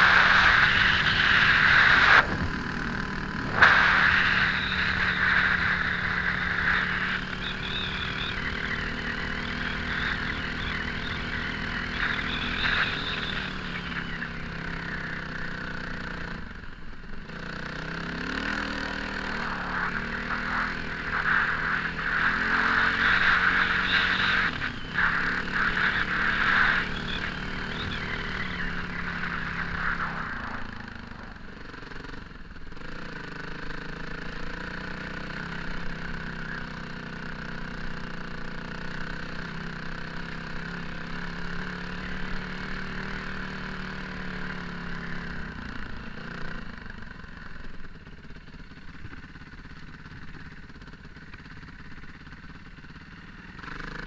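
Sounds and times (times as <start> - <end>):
wind rushing over microphone: 0.0 - 7.3, 18.5 - 31.6
motorcycle engine revving: 0.0 - 54.0.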